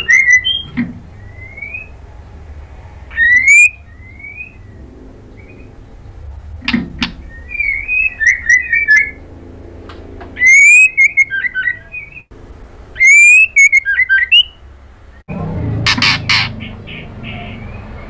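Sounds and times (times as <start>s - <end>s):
bird singing whistled notes: 0.0s - 2.0s, 3.1s - 5.8s, 7.0s - 9.2s, 10.4s - 12.3s, 13.0s - 15.2s.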